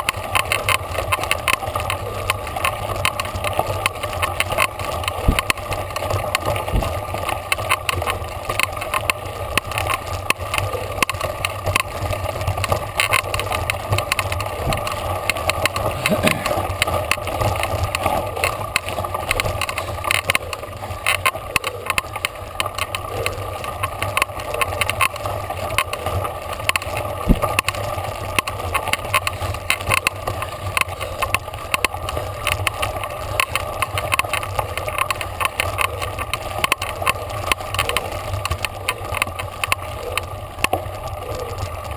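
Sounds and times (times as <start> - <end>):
bike rattling and knocking: 0.0 - 41.9.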